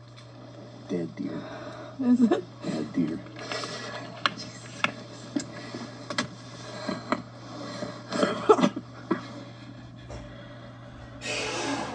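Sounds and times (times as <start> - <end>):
steady low hum: 0.0 - 11.9.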